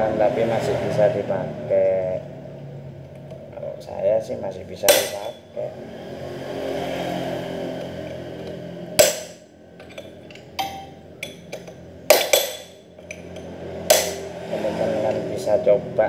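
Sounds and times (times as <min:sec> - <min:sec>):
sharp metal strikes: 0:04.8 - 0:05.6, 0:08.9 - 0:13.2, 0:13.8 - 0:14.5
hand tools clinking on metal: 0:09.0 - 0:14.2.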